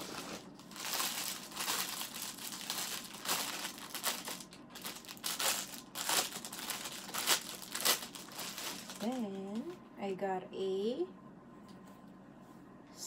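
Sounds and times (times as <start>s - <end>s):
plastic bag crinkling: 0.0s - 9.8s.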